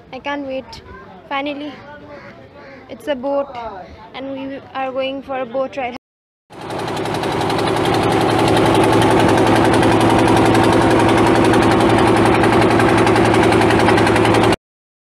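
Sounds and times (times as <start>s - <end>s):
boat engine running: 6.5s - 14.6s.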